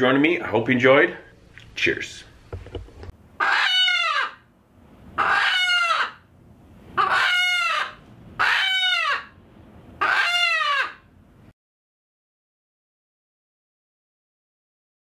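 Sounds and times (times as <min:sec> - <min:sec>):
chicken squawking: 0:03.4 - 0:04.5, 0:05.2 - 0:06.3, 0:07.0 - 0:09.4, 0:10.0 - 0:11.1.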